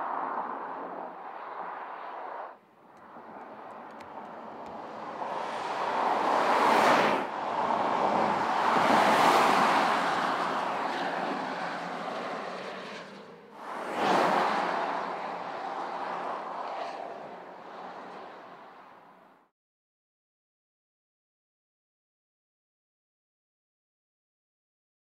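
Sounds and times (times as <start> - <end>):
car driving past: 0.2 - 18.7.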